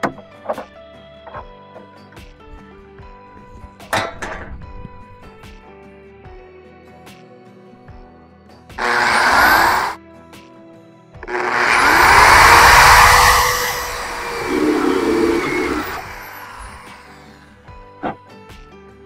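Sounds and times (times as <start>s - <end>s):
electric drill boring through metal: 8.8s - 10.0s, 11.2s - 17.5s.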